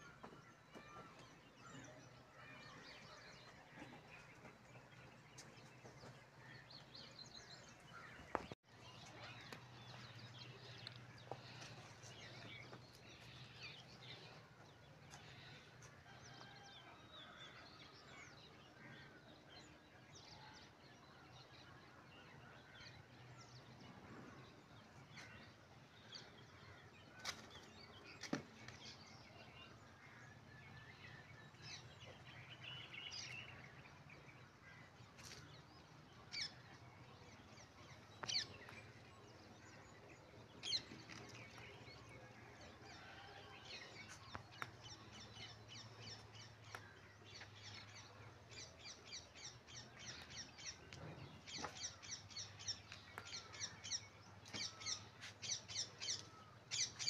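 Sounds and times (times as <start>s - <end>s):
small birds chirping: 0.0s - 16.6s.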